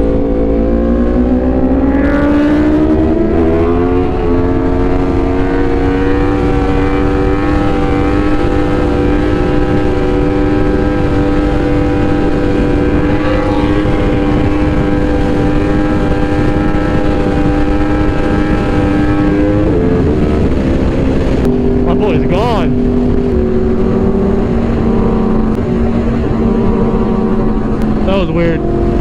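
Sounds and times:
motorcycle engine running: 0:00.0 - 0:29.0.

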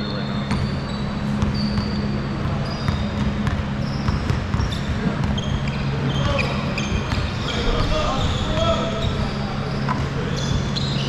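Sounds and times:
sneakers squeaking on court: 0:00.0 - 0:11.0
basketball bouncing: 0:00.4 - 0:09.3
voices: 0:01.6 - 0:11.0.

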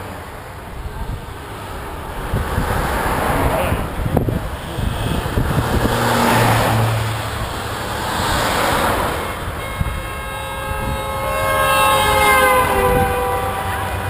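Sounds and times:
vehicles driving past: 0:00.0 - 0:14.0
vehicle horn sounding: 0:04.2 - 0:06.0, 0:09.0 - 0:14.0.

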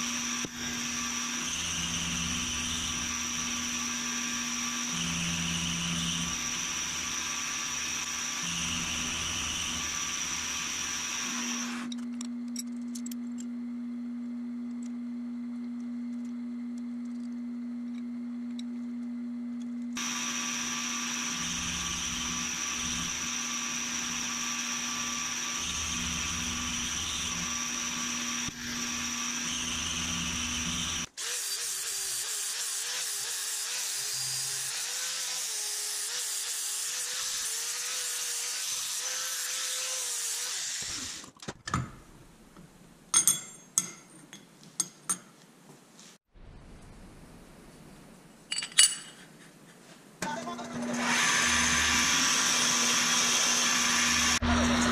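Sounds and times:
end mill grinding metal: 0:00.0 - 0:11.9, 0:20.0 - 0:31.1, 0:50.6 - 0:54.9
milling machine humming: 0:00.0 - 0:11.9, 0:20.0 - 0:31.1, 0:50.8 - 0:54.9
metal plates clinking: 0:48.5 - 0:49.2.

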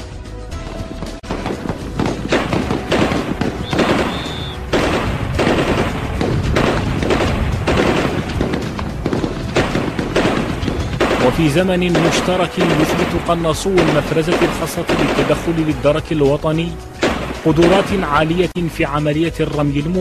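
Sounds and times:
rapid gunfire bursts: 0:01.3 - 0:15.8, 0:17.0 - 0:18.1.

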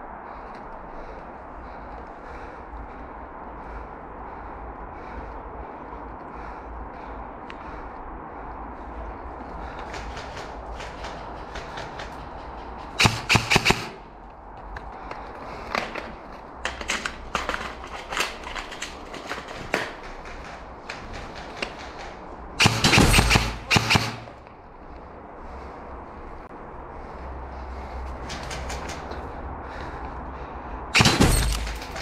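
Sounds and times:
airsoft rifle firing bursts: 0:13.0 - 0:14.0, 0:21.4 - 0:24.3.

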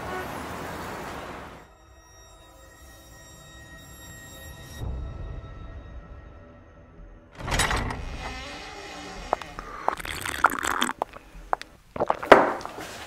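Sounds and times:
rustling: 0:09.0 - 0:13.0.

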